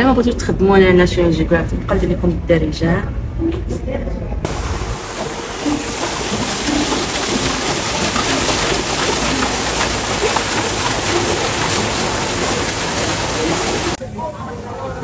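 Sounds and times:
waterfall splashing onto stone: 0:04.5 - 0:14.0.

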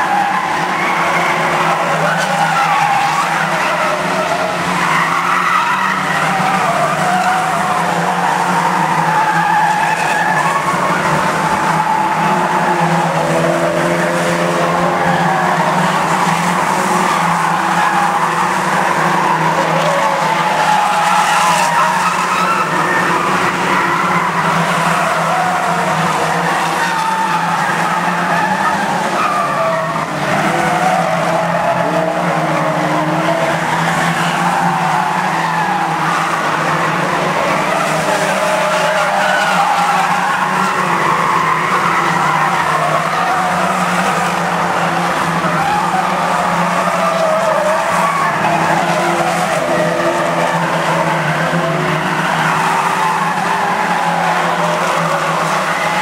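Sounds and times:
racing car engines: 0:00.0 - 0:56.0
tyres scrubbing on asphalt: 0:00.0 - 0:56.0.

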